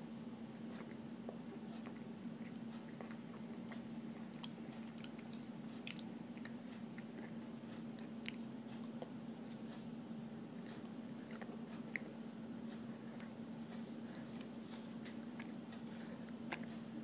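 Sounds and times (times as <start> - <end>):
steady low hum: 0.0 - 17.0
person chewing crunchily: 0.6 - 9.2, 10.6 - 12.2, 14.1 - 16.8.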